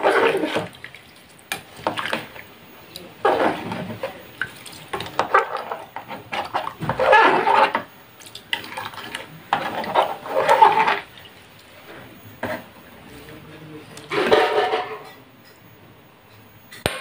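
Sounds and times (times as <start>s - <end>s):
liquid sloshing: 0.0s - 13.4s.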